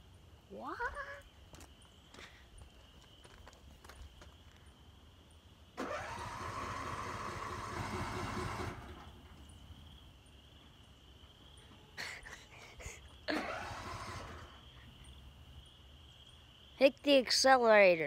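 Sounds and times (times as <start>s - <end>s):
lawnmower starter cranking engine: 5.8s - 9.4s, 13.3s - 14.8s.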